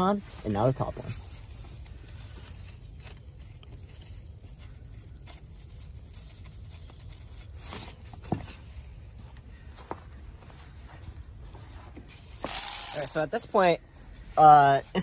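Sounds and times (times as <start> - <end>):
gloved hands scraping and clicking: 12.4 - 13.3.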